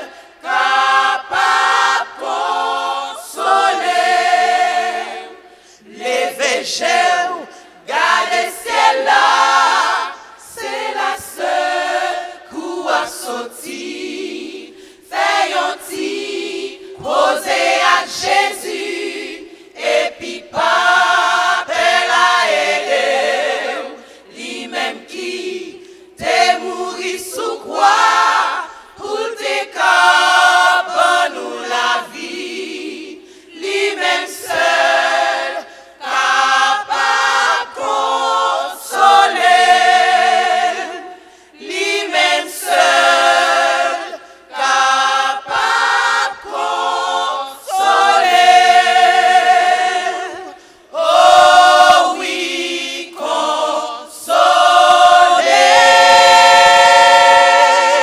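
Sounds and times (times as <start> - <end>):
women's choir singing: 0.0 - 58.0.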